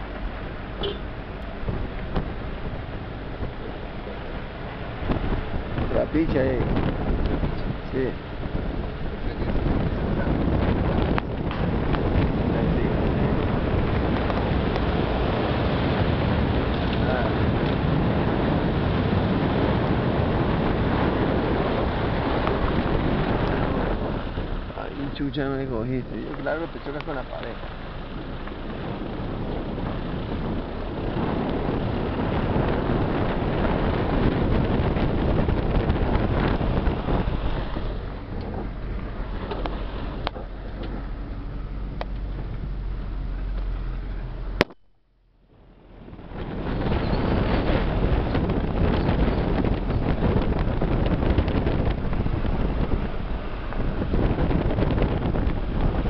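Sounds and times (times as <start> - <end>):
wind buffeting microphone: 0.0 - 44.7, 45.6 - 56.0
car tyres rumbling on dirt road: 0.0 - 56.0
sharp click: 44.6 - 44.9.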